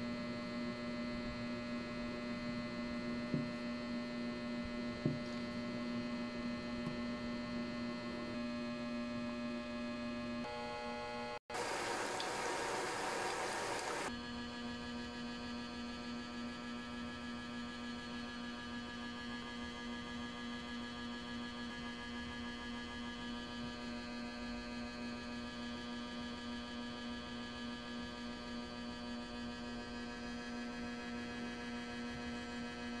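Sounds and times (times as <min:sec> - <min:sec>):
electrical hum: 0:10.4 - 0:14.1.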